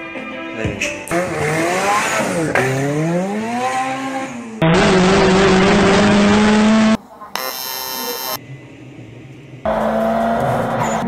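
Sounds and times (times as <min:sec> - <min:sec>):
car engine revving: 0:01.1 - 0:08.4, 0:09.7 - 0:11.0
engine at steady high speed: 0:01.1 - 0:09.0.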